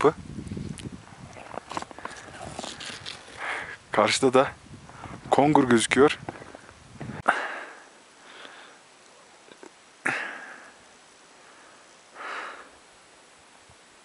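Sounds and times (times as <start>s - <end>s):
person breathing hard: 1.9s - 3.9s, 7.0s - 8.9s, 10.0s - 12.8s.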